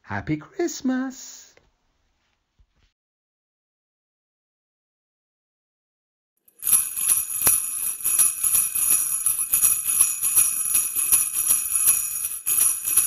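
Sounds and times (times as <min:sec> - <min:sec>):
jingle bells shaken: 0:06.5 - 0:13.0.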